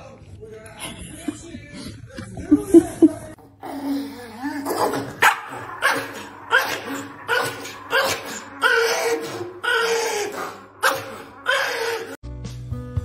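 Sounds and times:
music: 12.2 - 13.0.

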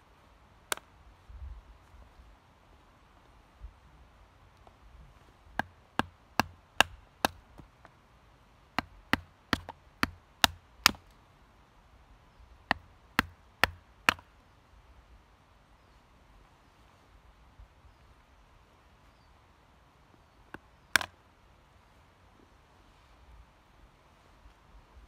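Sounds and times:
knife chopping wooden stick: 8.8 - 11.0, 12.7 - 14.2.

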